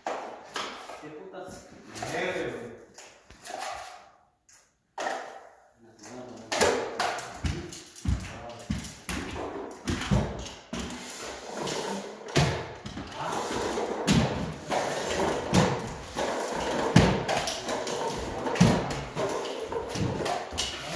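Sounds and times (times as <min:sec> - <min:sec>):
drywall tape scraping and rustling: 0:00.0 - 0:04.8, 0:07.2 - 0:20.9
stilts clacking on concrete floor: 0:05.0 - 0:20.9.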